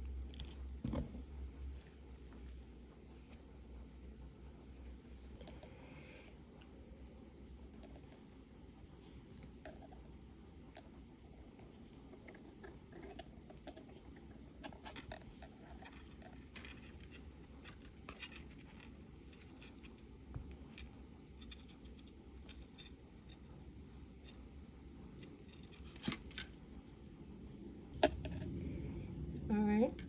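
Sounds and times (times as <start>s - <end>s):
wire scratching and clicking: 11.8s - 26.6s.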